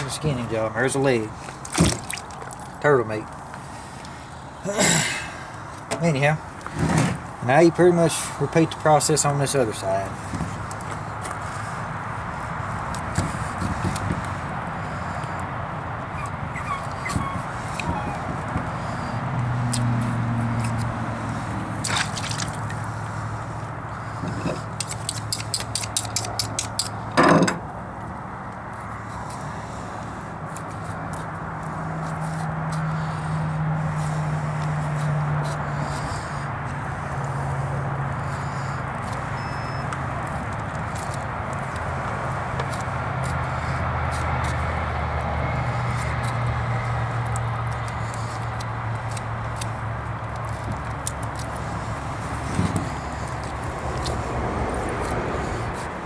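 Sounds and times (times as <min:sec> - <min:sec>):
knife clicking and scraping shell: 0:24.8 - 0:27.0.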